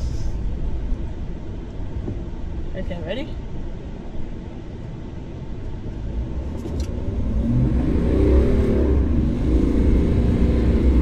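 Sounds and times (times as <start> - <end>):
truck engine revving hard: 7.0 - 11.0.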